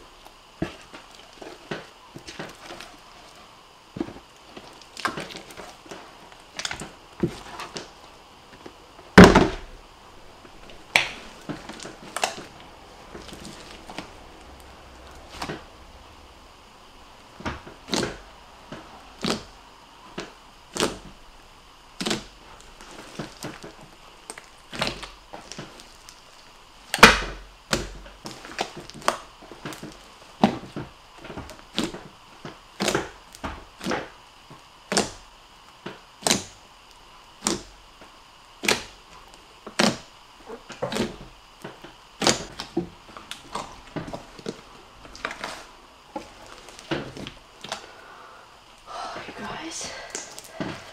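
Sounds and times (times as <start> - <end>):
hands squishing slime: 10.6 - 15.7, 17.5 - 18.3, 22.0 - 32.1, 32.8 - 34.1, 38.6 - 41.3, 42.2 - 48.0, 50.0 - 50.9.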